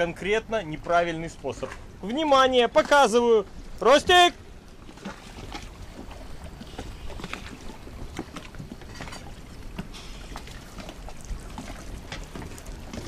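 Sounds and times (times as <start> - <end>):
water splashing from swimmer: 4.9 - 13.0.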